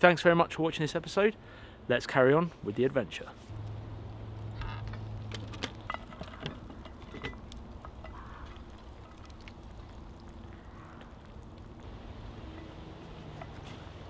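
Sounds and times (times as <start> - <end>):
campfire crackling: 3.4 - 14.0.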